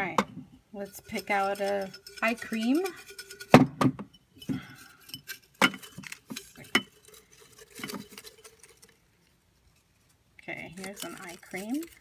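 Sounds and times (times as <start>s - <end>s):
paper slips rustling in a jar: 4.8s - 9.9s, 10.6s - 12.0s.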